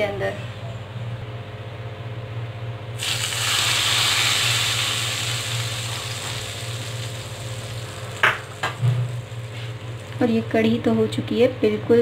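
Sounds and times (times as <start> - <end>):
steady low hum: 0.0 - 12.0
hot oil sizzling: 3.0 - 10.6.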